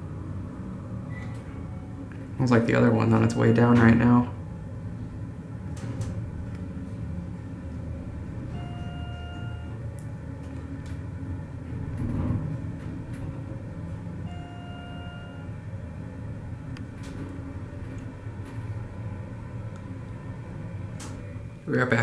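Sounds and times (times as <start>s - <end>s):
elevator low rumble: 0.0s - 22.0s
electronic beep: 3.3s - 3.9s, 8.5s - 9.8s, 14.3s - 15.5s.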